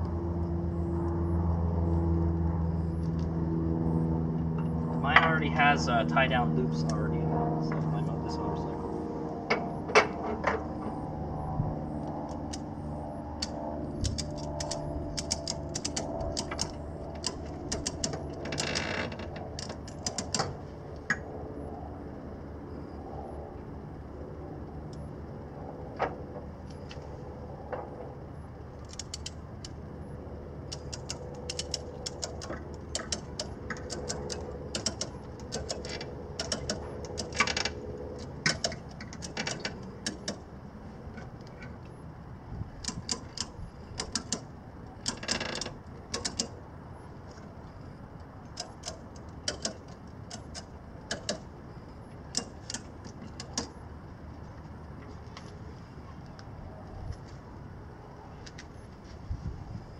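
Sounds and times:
ratchet strap clicking: 13.4s - 20.5s, 28.8s - 29.8s, 30.7s - 40.4s, 42.8s - 46.6s, 48.5s - 51.5s, 52.3s - 53.7s.

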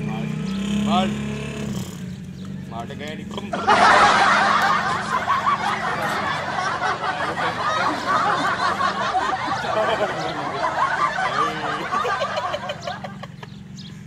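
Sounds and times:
young men laughing: 3.3s - 13.8s.

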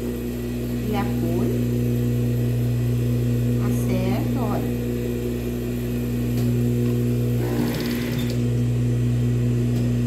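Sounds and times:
sewing machine motor humming: 6.4s - 8.7s
sewing machine rattle: 7.4s - 8.4s.

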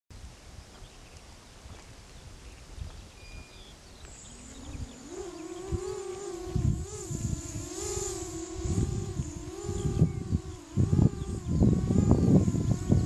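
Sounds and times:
wind buffeting microphone: 0.2s - 13.0s
quadcopter motors buzzing: 3.4s - 13.0s.

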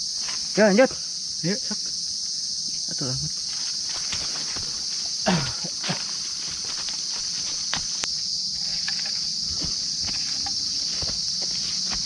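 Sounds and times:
insect chorus: 0.0s - 12.0s
footsteps: 3.5s - 5.1s, 5.8s - 12.0s.

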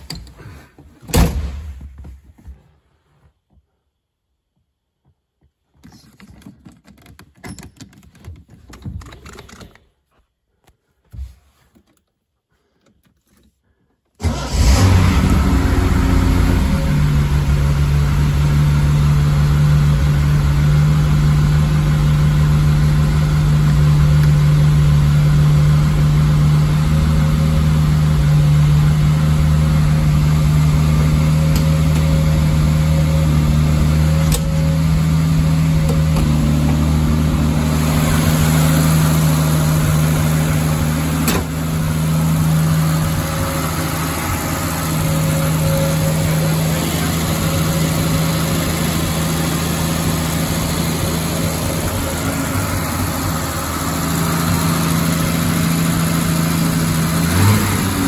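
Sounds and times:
car engine starting and idling: 14.2s - 58.0s.

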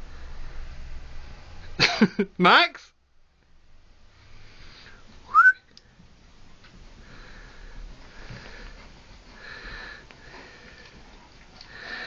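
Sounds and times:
loud rising whistle: 5.3s - 5.7s.

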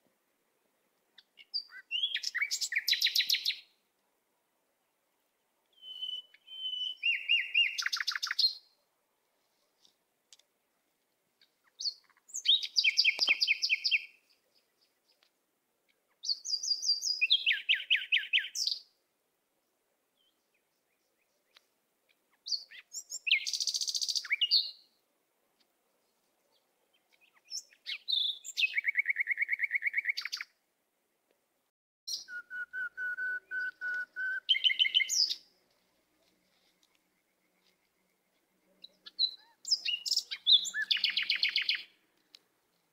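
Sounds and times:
songbird singing trilled phrases: 1.2s - 3.7s, 5.7s - 8.7s, 11.6s - 15.2s, 16.1s - 18.9s, 22.3s - 24.9s, 26.9s - 30.5s, 32.1s - 35.5s, 37.1s - 42.0s.

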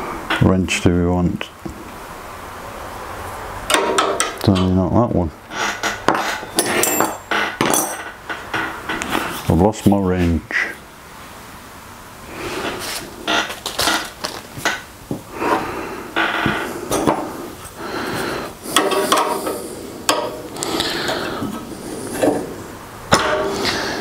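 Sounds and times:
steel wrenches clinking: 5.5s - 8.8s.

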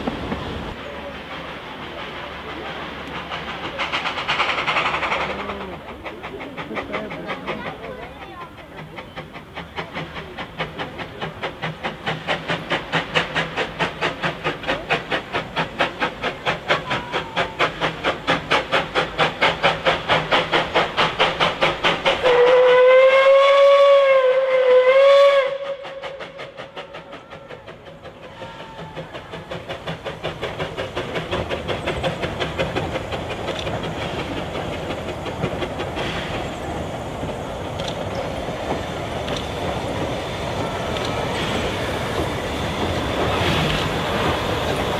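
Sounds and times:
steam locomotive exhaust beats: 0.0s - 44.9s
train carriages running: 0.0s - 44.9s
steam whistle: 22.2s - 26.3s.

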